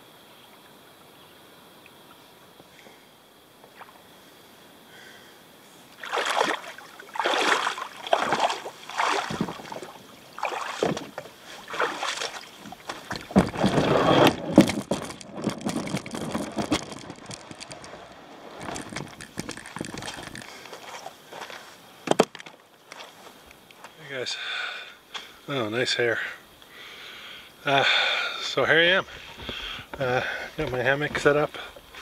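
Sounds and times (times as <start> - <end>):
kayak paddle splashing: 5.9 - 23.4.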